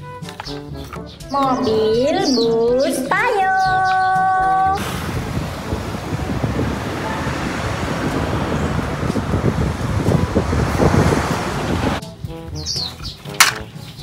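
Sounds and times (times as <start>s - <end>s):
coach engine and road noise: 4.2s - 13.8s
wind buffeting microphone: 4.7s - 12.9s.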